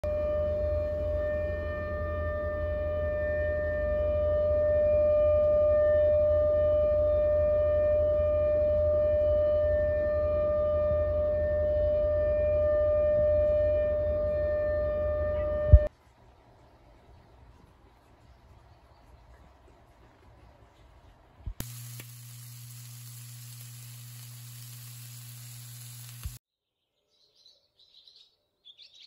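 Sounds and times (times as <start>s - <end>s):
siren steady tone: 0.0s - 15.9s.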